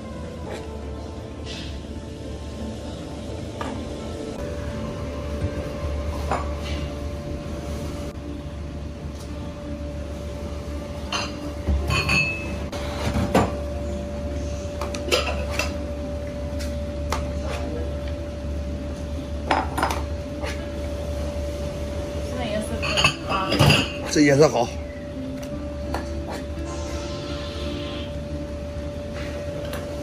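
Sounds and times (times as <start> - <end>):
steady low hum: 0.0 - 30.0
utensils clinking against pot: 11.1 - 12.6, 22.8 - 24.5.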